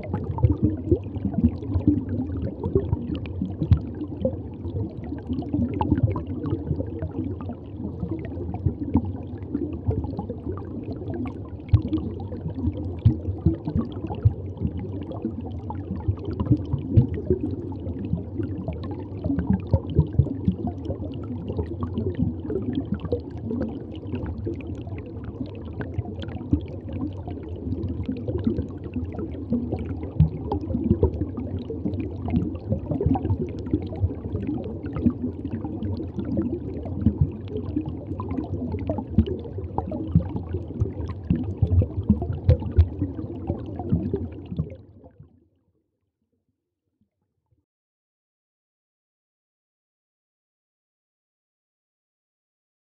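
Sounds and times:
aquarium water bubbling: 0.0s - 45.4s.

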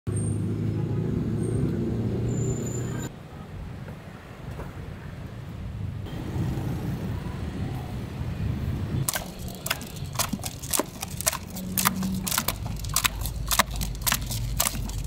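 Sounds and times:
low street rumble: 0.1s - 15.0s
bamboo sticks clacking on bucket: 9.1s - 15.0s.

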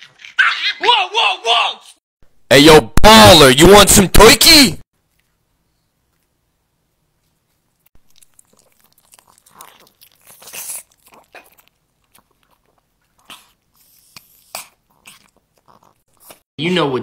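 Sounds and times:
dog chewing and licking: 8.0s - 16.4s.

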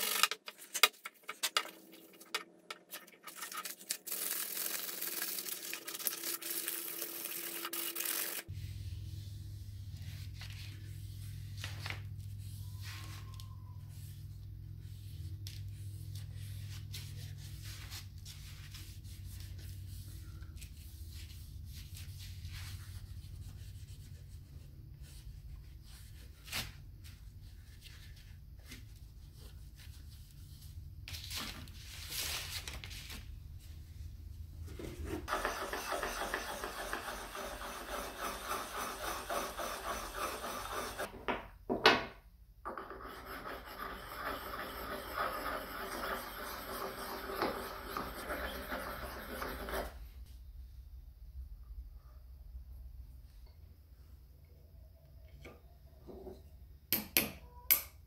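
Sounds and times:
low steady hum: 8.5s - 26.4s
hone scraping blade: 35.3s - 41.1s, 42.7s - 50.0s.

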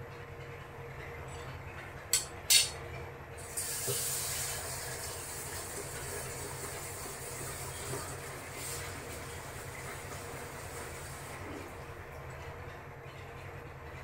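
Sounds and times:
low hum of pot cooking: 0.0s - 14.0s.

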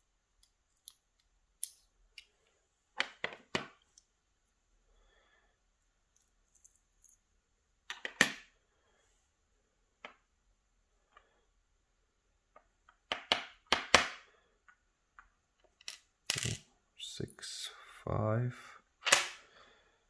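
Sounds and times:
small metal lock parts clicking: 0.4s - 2.3s.

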